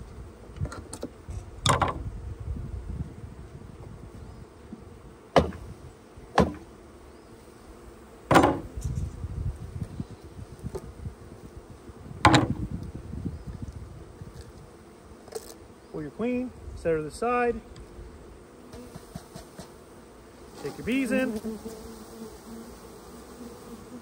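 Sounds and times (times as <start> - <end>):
honeybees buzzing: 0.0 - 24.0
wooden hive gear knocking: 8.3 - 8.7, 12.2 - 12.7.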